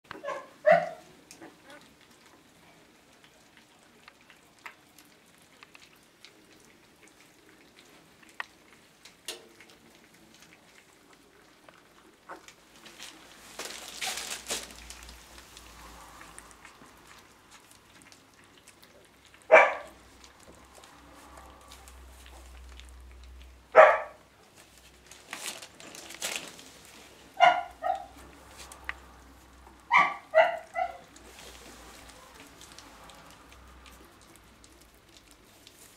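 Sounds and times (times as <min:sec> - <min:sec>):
puppy yelp: 0:00.2 - 0:01.8, 0:19.5 - 0:20.0, 0:23.8 - 0:24.2, 0:27.4 - 0:28.2, 0:29.9 - 0:31.1
rustling: 0:04.0 - 0:35.9.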